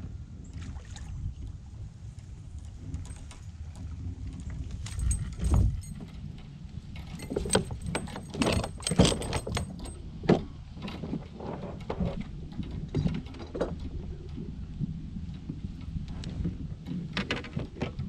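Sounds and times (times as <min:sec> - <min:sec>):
low steady rumble: 0:00.0 - 0:18.0
tackle rattling and knocking: 0:07.0 - 0:13.8, 0:16.9 - 0:18.0.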